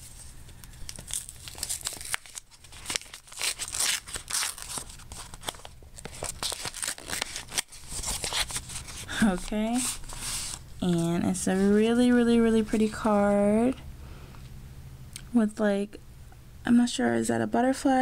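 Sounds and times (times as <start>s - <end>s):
paper envelope tearing and crinkling: 0.6s - 10.6s.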